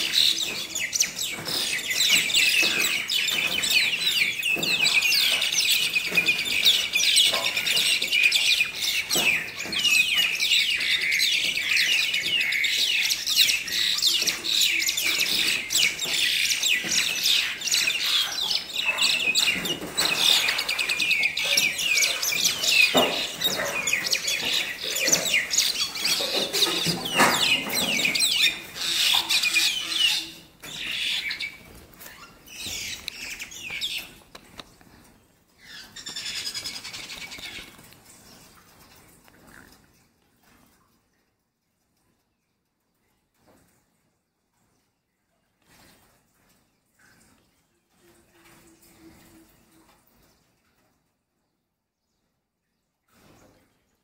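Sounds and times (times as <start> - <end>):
birds chattering harshly: 0.0 - 34.6.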